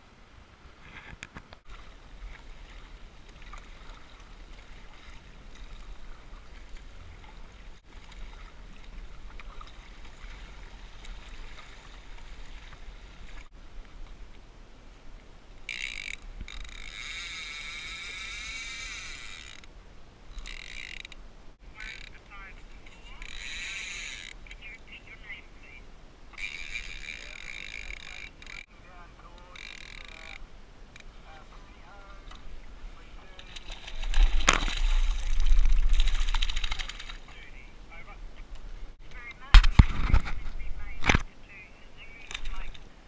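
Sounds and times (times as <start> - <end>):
water noise: 0.0 - 43.0
fishing reel drag screaming: 15.7 - 19.7, 20.3 - 21.1, 23.1 - 24.4, 26.4 - 28.6, 29.5 - 30.4
wind noise on microphone: 33.8 - 36.8, 38.2 - 41.3.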